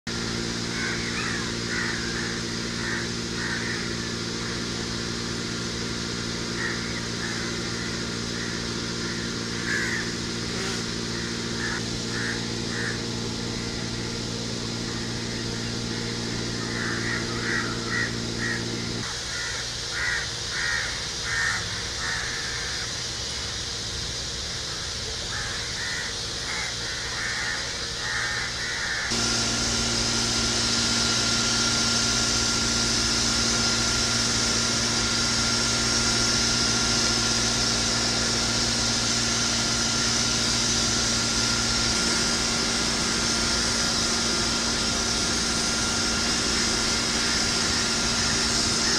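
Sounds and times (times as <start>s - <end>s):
steady low hum: 0.0s - 48.9s
crows cawing: 0.7s - 4.6s, 6.5s - 10.4s, 11.1s - 13.1s, 16.6s - 23.4s, 24.6s - 29.2s, 48.1s - 48.9s.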